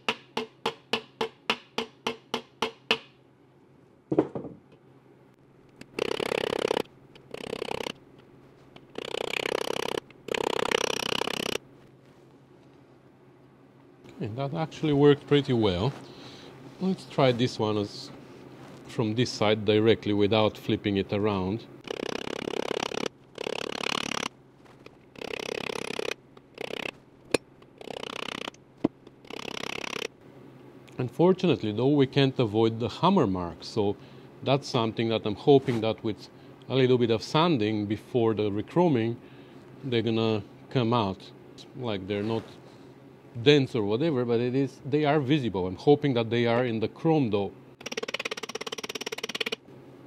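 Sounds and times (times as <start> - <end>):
hammer tapping on metal wheel cover: 0.0 - 3.1.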